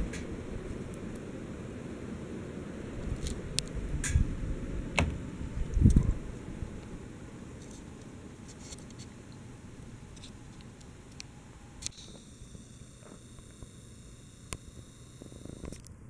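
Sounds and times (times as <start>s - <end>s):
ceiling fan motor hum: 0.0s - 16.0s.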